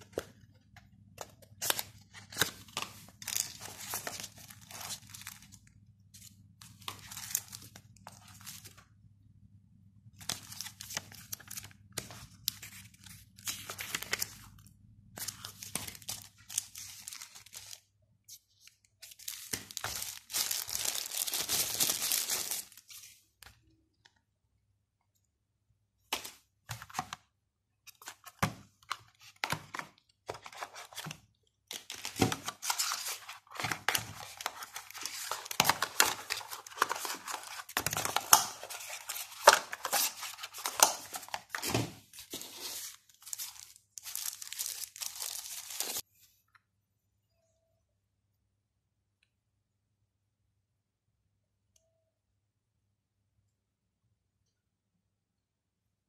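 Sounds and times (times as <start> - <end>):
plastic wrapping crinkling: 19.0 - 23.0, 31.7 - 46.0.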